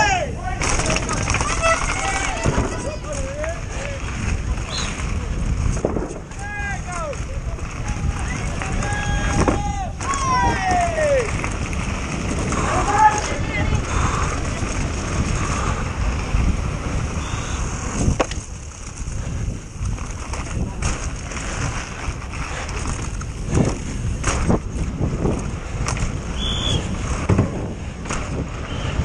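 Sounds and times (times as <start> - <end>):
bike rattling: 0.0 - 29.0
tyres rumbling: 0.0 - 29.0
wind on microphone: 0.0 - 29.0
sharp knocks over bumps: 0.6 - 3.9, 5.6 - 7.3, 8.7 - 12.6, 18.0 - 18.6, 22.7 - 26.2, 27.2 - 28.5.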